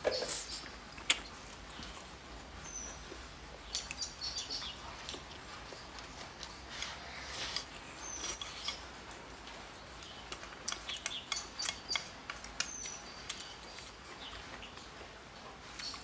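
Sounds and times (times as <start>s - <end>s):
wet chewing and lip smacks: 0.5s - 2.2s, 3.1s - 8.8s, 10.0s - 15.0s.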